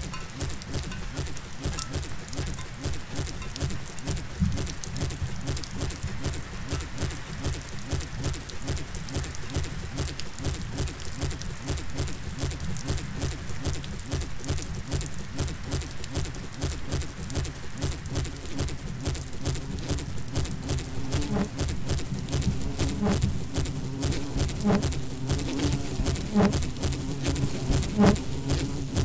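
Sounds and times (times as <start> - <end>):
buzzing drone: 0.0 - 29.0
rapid pattering clicks: 0.0 - 29.0.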